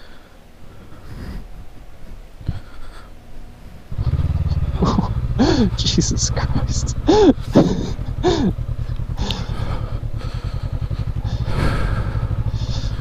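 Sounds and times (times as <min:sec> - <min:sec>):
motorcycle engine running: 0:03.9 - 0:13.0.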